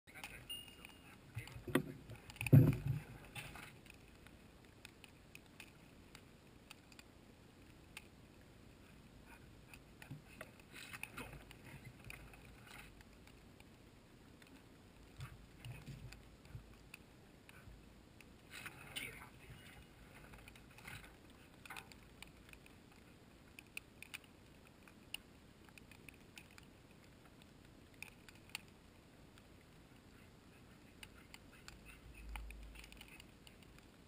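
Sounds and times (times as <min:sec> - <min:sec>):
loud thump: 0:02.5 - 0:03.0.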